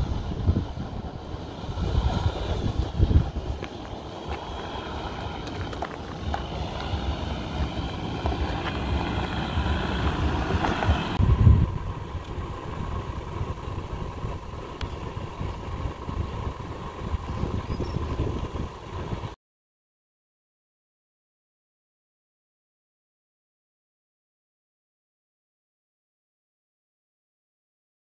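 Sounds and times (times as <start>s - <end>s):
vehicle engine low rumble: 0.0s - 19.4s
wind buffeting microphone: 0.0s - 19.4s.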